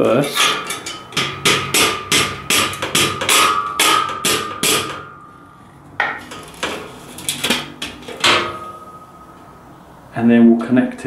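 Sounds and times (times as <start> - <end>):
rubber mallet knocking metal: 0.4 - 5.3.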